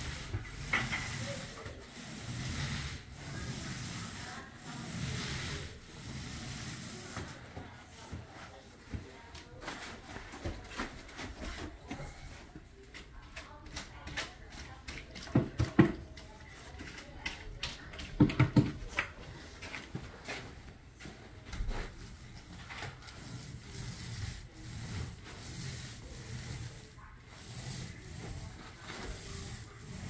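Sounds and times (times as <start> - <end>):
paint roller knocking on grid: 0.0 - 7.3, 13.3 - 19.1, 23.1 - 30.0
paint roller rubbing on ceiling: 0.0 - 30.0.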